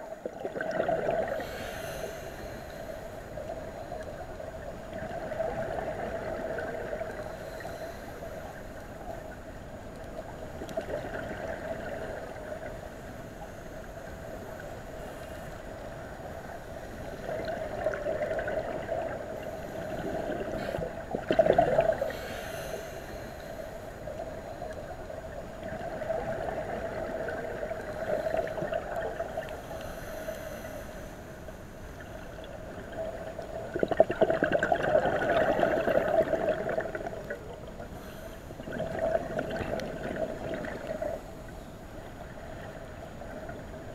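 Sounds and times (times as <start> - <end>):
regulator bubbles gurgling: 0.0 - 1.7, 3.3 - 7.7, 8.9 - 12.8, 15.8 - 22.3, 24.0 - 29.8, 32.0 - 41.4.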